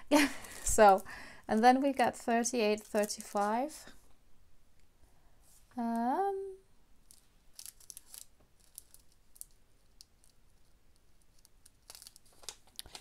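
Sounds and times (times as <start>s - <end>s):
plastic bag crinkling: 0.2s - 3.8s, 7.0s - 10.4s, 11.3s - 13.0s.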